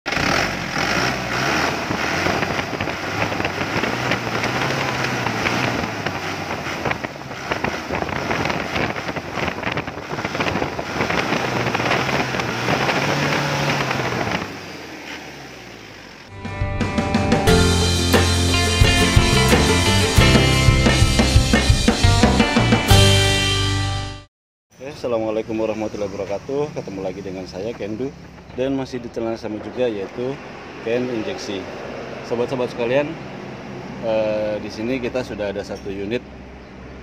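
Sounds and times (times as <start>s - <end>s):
diesel engine revving: 0.1s - 23.3s.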